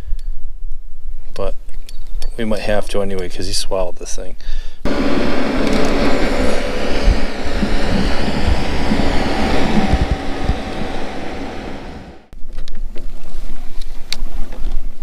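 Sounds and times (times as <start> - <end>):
low wind rumble: 4.9 - 12.3
wind buffeting microphone: 4.9 - 12.3.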